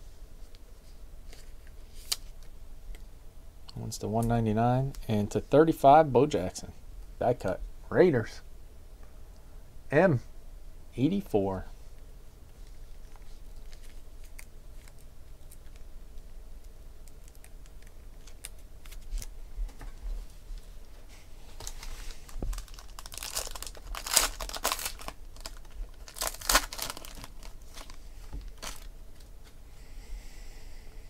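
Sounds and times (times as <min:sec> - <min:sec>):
foil wrapper crinkling and tearing: 0:17.0 - 0:19.3, 0:21.6 - 0:29.3.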